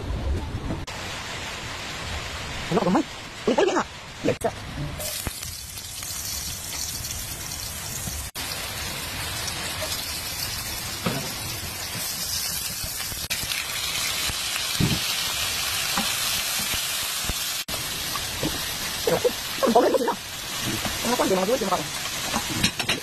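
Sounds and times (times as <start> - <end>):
onion and garlic sizzling in oil: 0.9 - 23.0.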